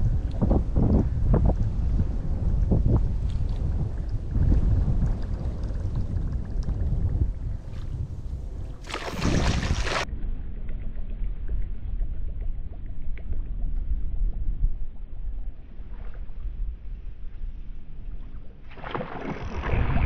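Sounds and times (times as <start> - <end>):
wind buffeting microphone: 0.0 - 10.1.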